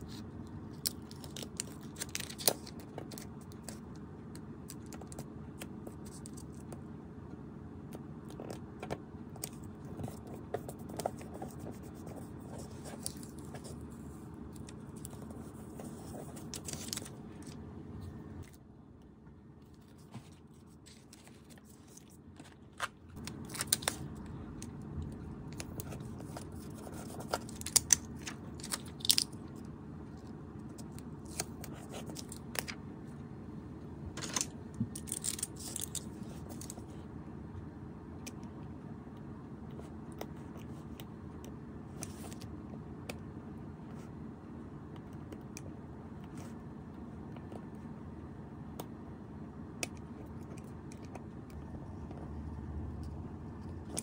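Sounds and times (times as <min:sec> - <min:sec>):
paper crinkling and rustling: 0:00.0 - 0:03.8, 0:09.5 - 0:17.6, 0:19.6 - 0:29.6, 0:30.7 - 0:32.8, 0:34.2 - 0:36.9
sticker sheets being peeled: 0:00.0 - 0:03.9, 0:08.3 - 0:18.6, 0:19.7 - 0:29.6, 0:30.2 - 0:32.8, 0:34.2 - 0:37.0
low background hum: 0:00.0 - 0:54.0.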